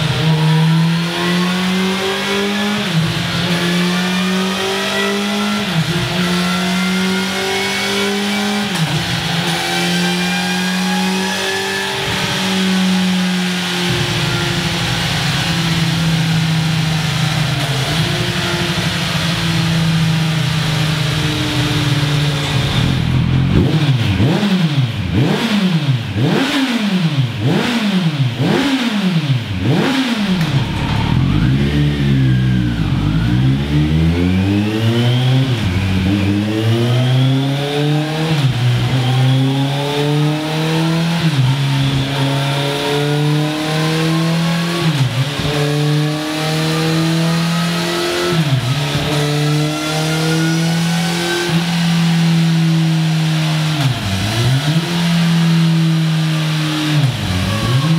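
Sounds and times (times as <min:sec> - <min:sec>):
motorcycle engine revving: 0:00.0 - 0:57.9.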